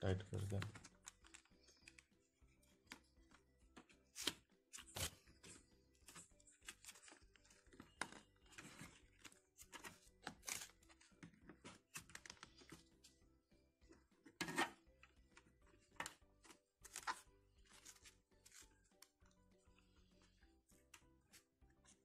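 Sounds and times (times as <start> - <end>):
faint background music: 0.0 - 22.0.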